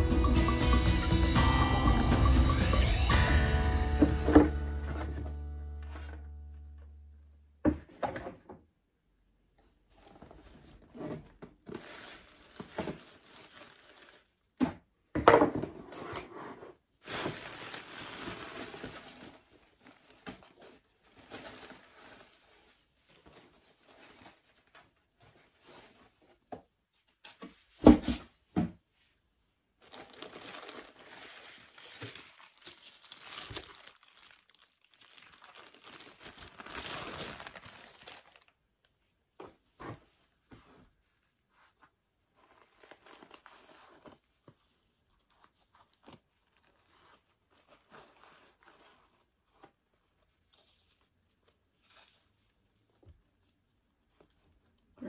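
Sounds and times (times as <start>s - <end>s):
tissue paper and plastic rustling: 4.0s - 6.6s, 11.6s - 14.6s, 16.8s - 27.7s, 29.8s - 39.0s, 39.8s - 54.9s.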